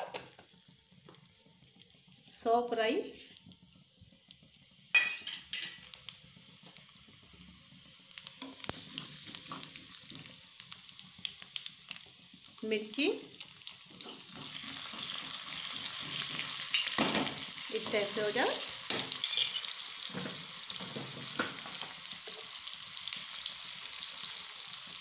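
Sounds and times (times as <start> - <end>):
seeds crackling in hot oil: 0.0 - 25.0
metal ladle scraping pan: 19.1 - 19.7.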